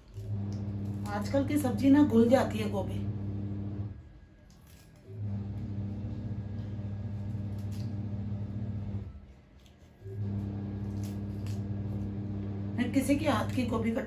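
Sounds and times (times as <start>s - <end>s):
washing machine motor humming: 0.0s - 4.0s, 5.1s - 9.1s, 10.1s - 14.0s.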